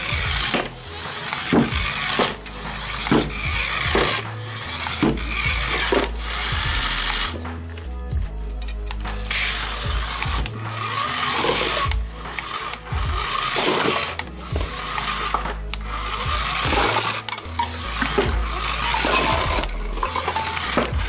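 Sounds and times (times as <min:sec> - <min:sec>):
toy car motor whirring: 0:00.0 - 0:08.0, 0:08.6 - 0:21.0
background music with bass: 0:00.0 - 0:21.0
cups clattering: 0:16.6 - 0:21.0.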